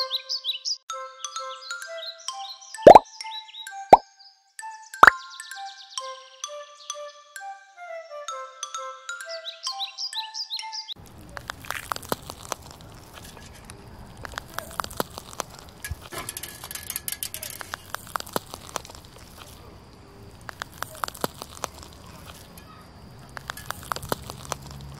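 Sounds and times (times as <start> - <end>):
slime squeezed making small pops: 20.4 - 22.5.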